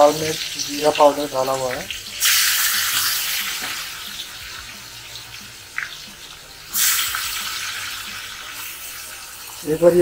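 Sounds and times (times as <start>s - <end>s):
prawns sizzling in hot oil: 0.0s - 10.0s.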